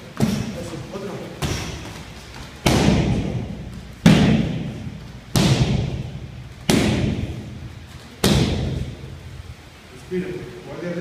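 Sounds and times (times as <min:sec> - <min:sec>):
kicks thudding on pads: 0:01.4 - 0:09.0.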